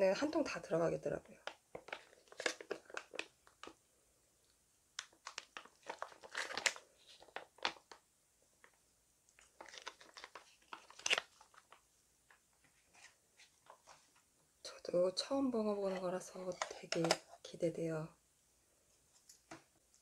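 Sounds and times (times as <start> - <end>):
plastic pouch crinkling: 1.4 - 3.8, 5.0 - 8.0, 9.4 - 12.4.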